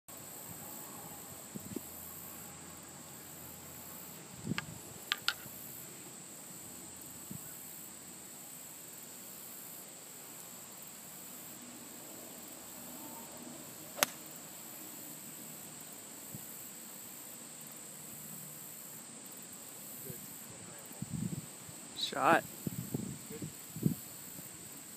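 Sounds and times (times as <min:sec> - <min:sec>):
high-pitched hiss: 0:00.1 - 0:24.9
golf club striking ball: 0:14.0 - 0:14.3.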